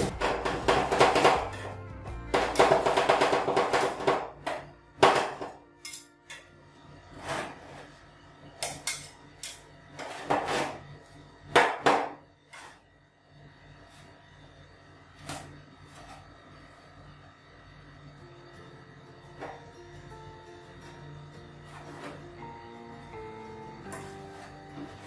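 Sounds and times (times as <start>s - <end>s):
spatula scraping ice cream: 7.1s - 8.1s.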